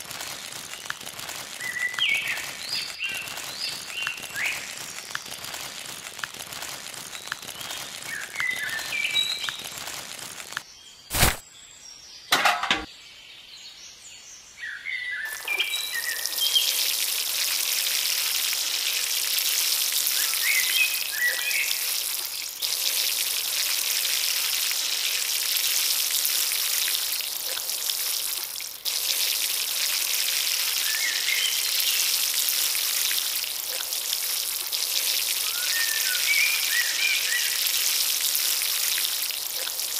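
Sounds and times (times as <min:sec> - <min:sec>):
water pouring onto sand: 0:00.0 - 0:11.4, 0:15.3 - 0:39.9
birds chirping: 0:07.0 - 0:10.2, 0:14.7 - 0:19.0.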